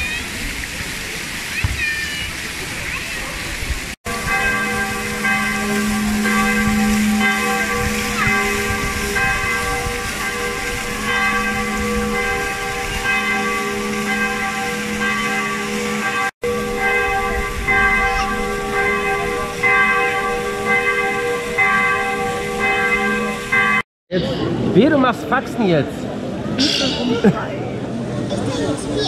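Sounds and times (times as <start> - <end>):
fountain splashing: 0.0 - 29.0
church bells ringing a peal: 4.1 - 23.8.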